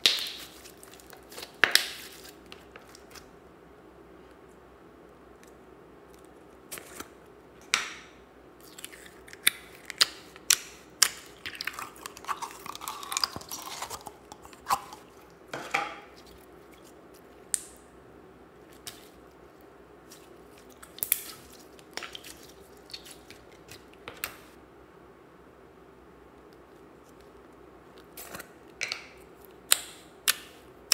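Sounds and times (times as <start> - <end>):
slime crackling squelches: 0.0 - 3.3, 8.6 - 15.4, 18.6 - 24.6.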